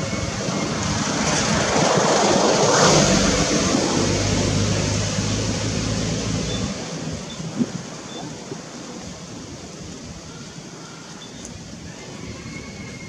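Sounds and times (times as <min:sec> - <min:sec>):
vehicle passing rushing noise: 0:00.0 - 0:08.0
low engine hum: 0:00.0 - 0:08.9.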